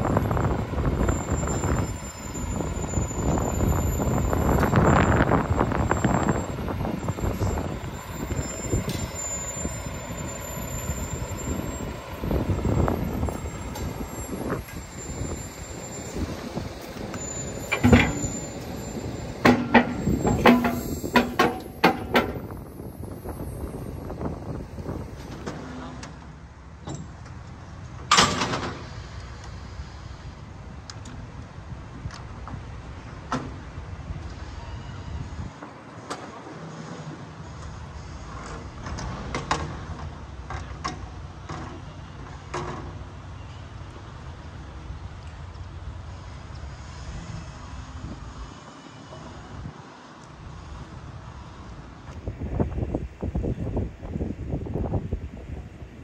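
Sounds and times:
low engine rumble: 0.0 - 28.2
metallic clanks with ringing: 16.9 - 22.6
sharp knocks and clatters: 19.4 - 22.5.

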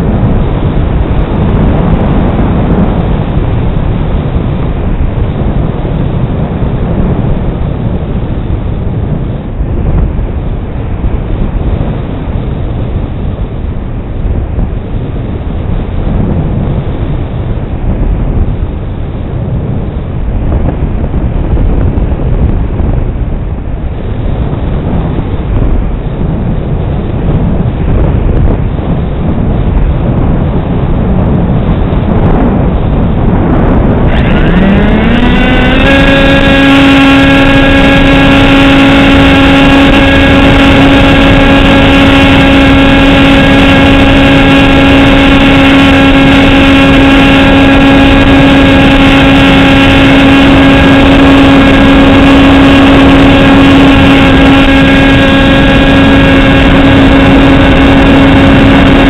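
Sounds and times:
wind rushing over microphone: 0.0 - 59.0
model aircraft motor whine: 34.0 - 59.0.

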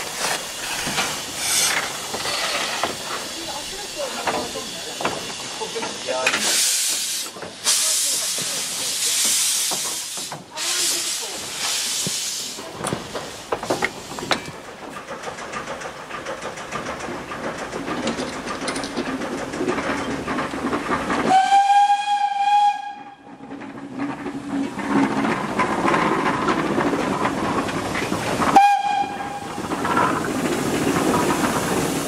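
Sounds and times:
steam locomotive hissing: 0.0 - 32.0
train wheels clicking and knocking: 0.0 - 32.0
steam whistle: 21.3 - 23.2, 28.6 - 29.4.

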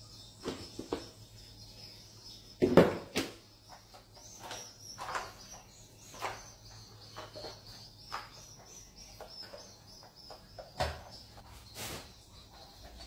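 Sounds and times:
high bird chirping: 0.0 - 13.0
mop swishing over tiled floor: 11.5 - 12.3.

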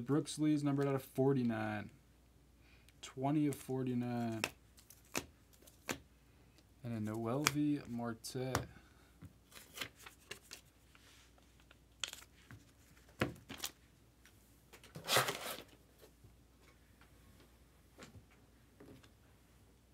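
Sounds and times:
cards and packaging rustling: 3.4 - 6.0, 9.4 - 16.2.

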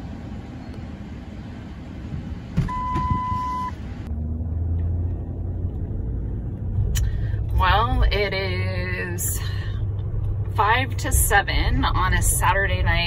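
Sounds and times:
car cabin low rumble: 0.0 - 13.0
electronic beep: 2.7 - 3.8.

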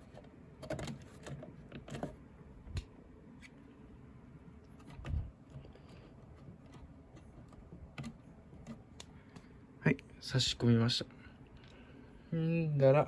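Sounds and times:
clicks and rustles of wiring: 4.6 - 9.5.

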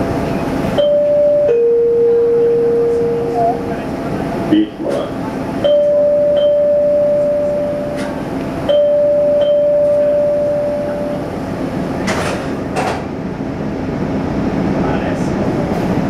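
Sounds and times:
subway car hum: 0.0 - 16.0
door warning beeps: 8.7 - 11.2.

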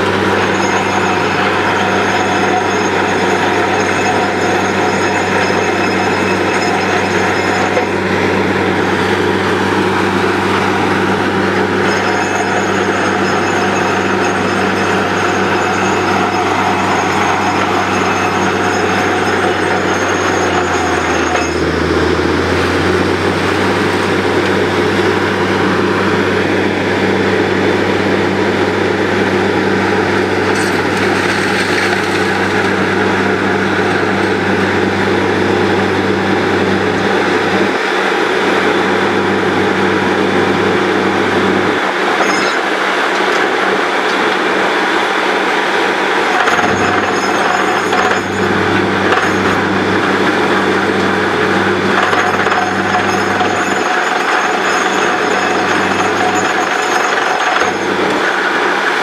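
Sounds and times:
low engine hum: 0.0 - 42.1, 46.5 - 53.8
drilling rig running: 0.0 - 59.0.

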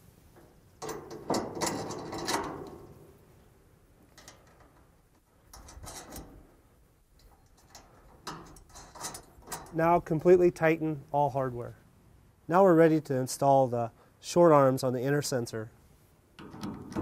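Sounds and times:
light metallic clicks and knocks: 0.4 - 3.1, 4.0 - 6.5, 7.1 - 9.9.

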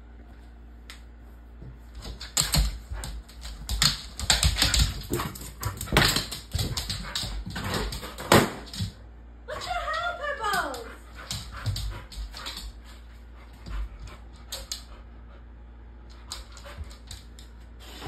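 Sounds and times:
paws scrabbling on floor: 0.3 - 9.0, 10.5 - 15.1
dog bumping rubber balloon: 3.6 - 8.7.

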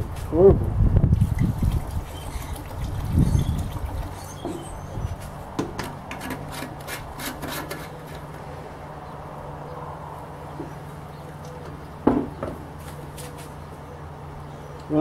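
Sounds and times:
metal can scraping on wooden table: 4.1 - 8.3.

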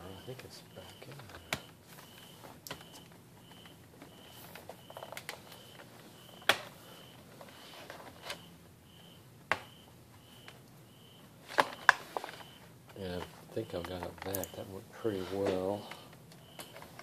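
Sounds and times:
faint high beep: 13.6 - 14.8.

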